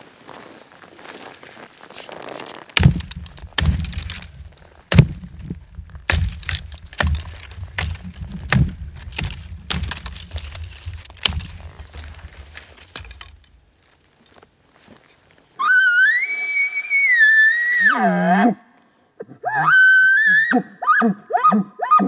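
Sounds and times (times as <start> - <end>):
footsteps snapping twigs: 1.1 - 15.0
low microphone rumble: 2.8 - 13.3.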